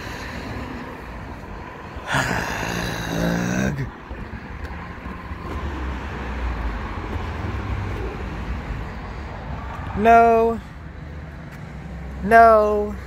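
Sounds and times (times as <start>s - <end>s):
road traffic hiss: 0.0s - 12.2s
vehicle passing rumble: 0.0s - 12.3s.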